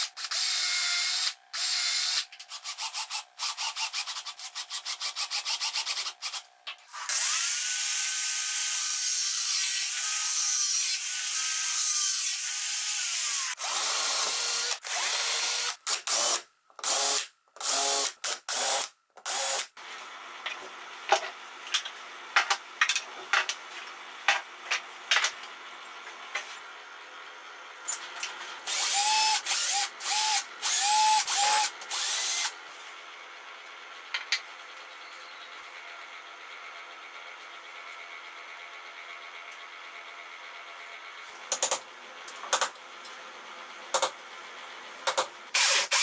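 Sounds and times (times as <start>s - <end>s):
power drill whine: 0.0s - 4.1s, 9.9s - 19.7s, 28.6s - 32.9s, 45.6s - 46.0s
angle grinder cutting steel: 28.7s - 32.5s.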